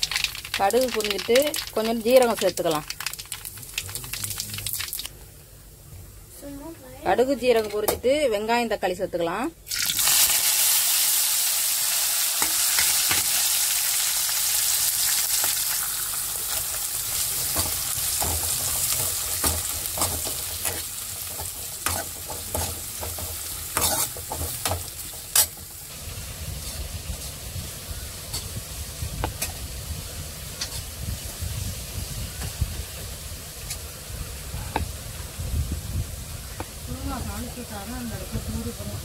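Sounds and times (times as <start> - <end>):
vegetables sizzling in hot oil: 0.0 - 5.2, 9.7 - 39.0
steel ladle scraping a pan: 17.4 - 25.6.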